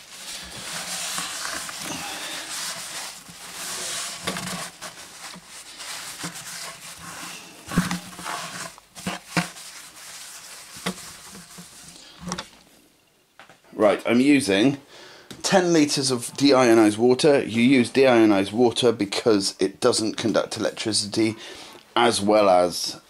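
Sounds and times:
cloth scrubbing plastic bucket: 0.0s - 12.0s.

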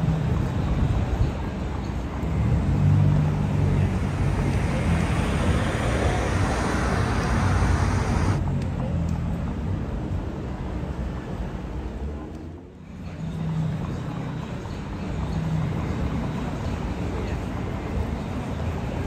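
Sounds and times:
road traffic passing: 0.0s - 19.0s
tyres hissing: 3.4s - 8.4s.

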